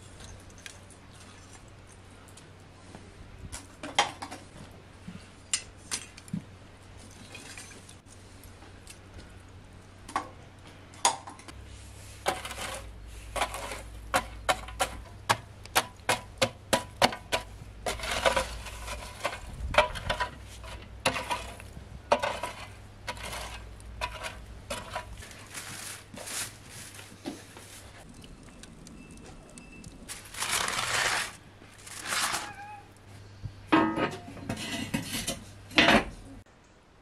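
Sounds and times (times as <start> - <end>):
stick scraping embers: 11.6 - 27.0, 29.8 - 32.6
embers clinking and knocking: 12.2 - 25.5.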